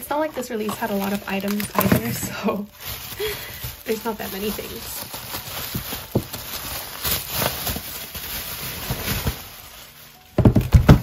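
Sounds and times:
bubble wrap crinkling: 0:00.0 - 0:11.0
albums knocking on wooden desk: 0:10.4 - 0:11.0.

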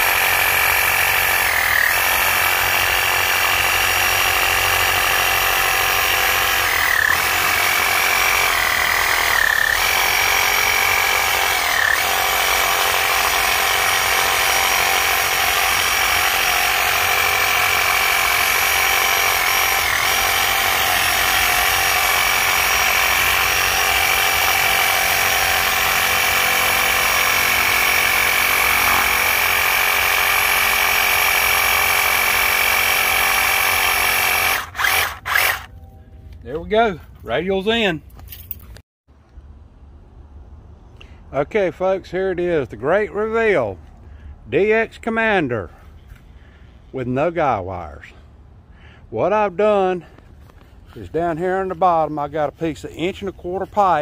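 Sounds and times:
power tool whining: 0:00.0 - 0:35.7.

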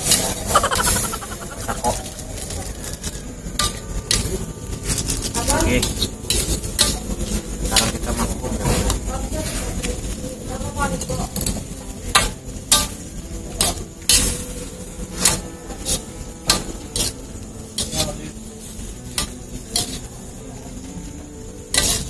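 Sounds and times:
oil sizzling: 0:00.0 - 0:22.0
metal spatula scraping wok: 0:15.2 - 0:20.1, 0:21.7 - 0:22.0.

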